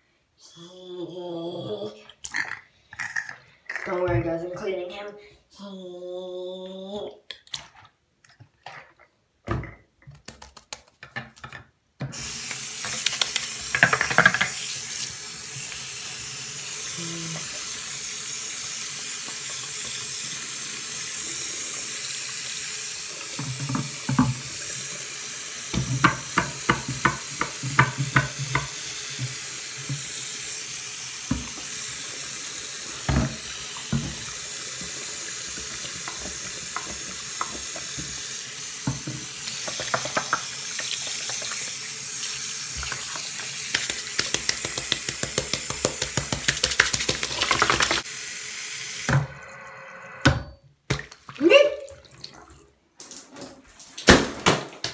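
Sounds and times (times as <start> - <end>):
tap water running into sink: 12.1 - 49.5.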